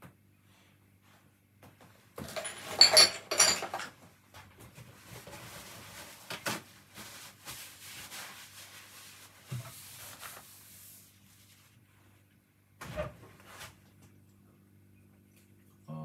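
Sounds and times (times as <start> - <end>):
faint rubbing and rustling: 4.6 - 12.3.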